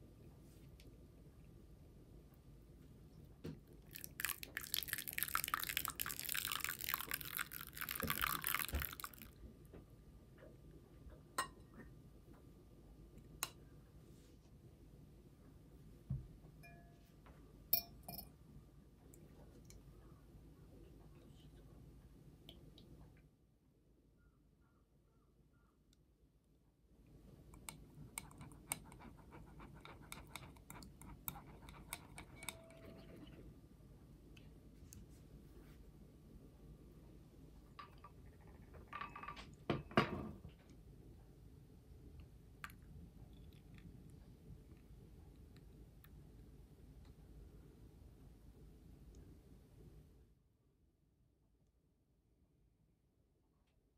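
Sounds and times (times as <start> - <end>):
milk pouring into eggs: 3.9 - 9.4
light clinks on glass bowl: 16.6 - 17.0, 17.8 - 18.4
whisk stirring in bowl: 28.1 - 33.4.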